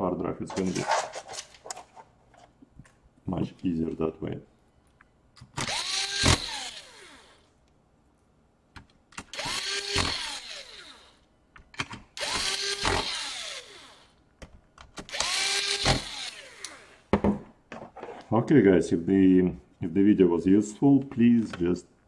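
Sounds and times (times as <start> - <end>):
drill click: 5.4 - 7.4, 15.0 - 16.9
cordless drill motor whine: 5.6 - 7.4, 9.3 - 11.2, 12.2 - 14.2, 15.1 - 17.0.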